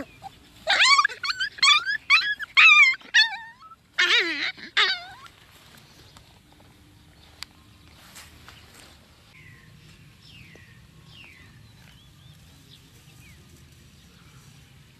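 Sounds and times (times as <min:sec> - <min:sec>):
young animal yelping squeals: 0:00.0 - 0:05.3.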